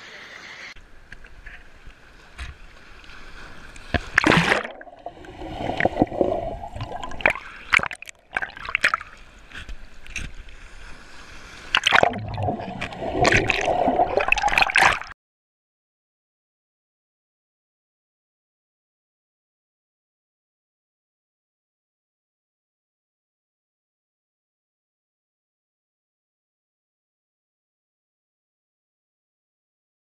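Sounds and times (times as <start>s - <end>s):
sea water splashing and gurgling: 1.4s - 15.2s.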